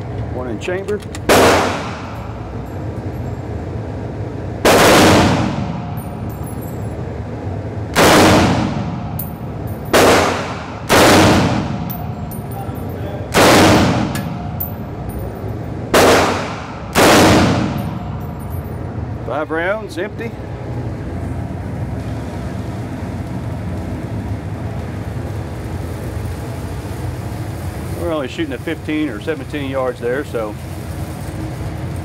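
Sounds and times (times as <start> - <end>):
rifle shots echoing indoors: 1.3 - 2.4, 4.6 - 6.0, 7.9 - 9.1, 9.9 - 11.9, 13.3 - 14.5, 15.9 - 18.1.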